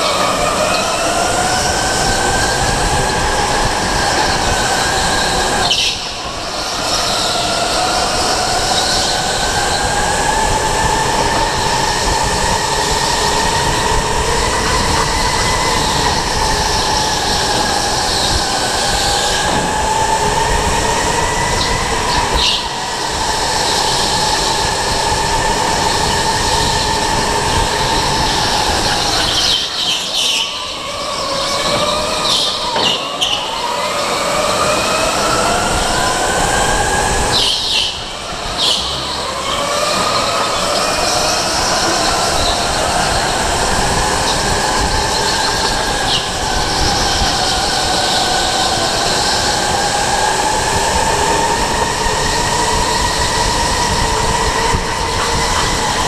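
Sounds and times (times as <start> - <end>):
wind noise: 0.0 - 56.0.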